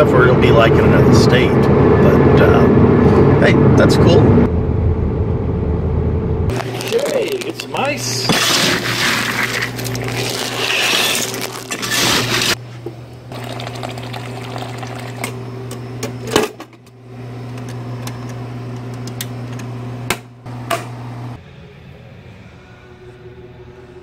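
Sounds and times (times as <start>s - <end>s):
kitchen appliance humming: 6.5s - 21.4s
ice clattering from dispenser: 8.3s - 12.6s.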